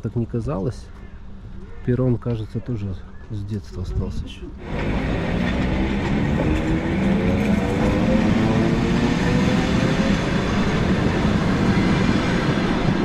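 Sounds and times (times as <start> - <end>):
train rumble with motor whine: 4.6 - 13.0.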